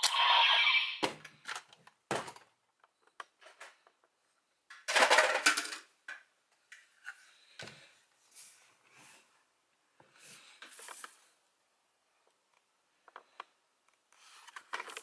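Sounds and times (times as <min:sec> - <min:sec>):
toy electronic sound effect: 0:00.0 - 0:01.1
plastic toy parts clattering: 0:04.7 - 0:05.9.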